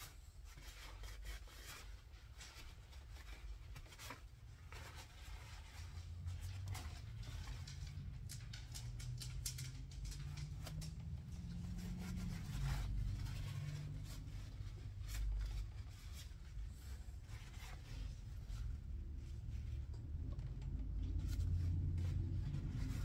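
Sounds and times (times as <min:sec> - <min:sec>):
low rumble: 0:06.3 - 0:23.0.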